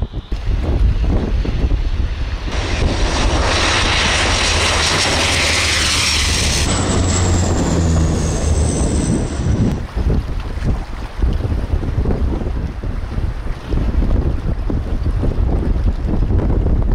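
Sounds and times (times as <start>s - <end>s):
high engine whine falling in pitch: 0.0s - 10.0s
turboprop engines at high power: 0.0s - 10.4s.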